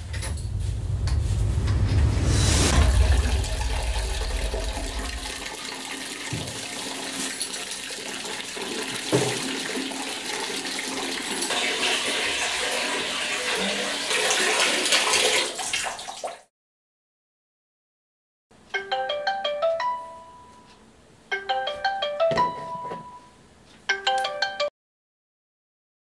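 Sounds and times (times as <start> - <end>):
water running from a tap: 2.8 - 16.5.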